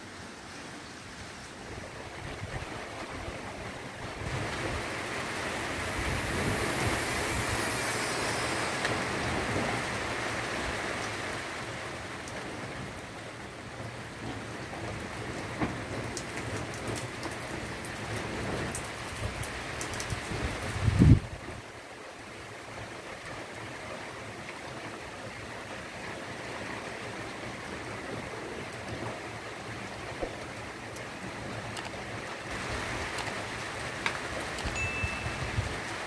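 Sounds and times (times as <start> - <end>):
rain on plastic sheeting: 0.0 - 36.0
single raindrop ticks: 15.6 - 18.0, 18.7 - 20.3.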